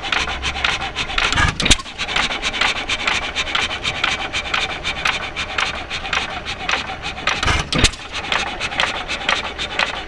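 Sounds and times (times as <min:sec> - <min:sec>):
gas engine clattering: 0:00.0 - 0:10.0
heavy thump: 0:07.3 - 0:08.0.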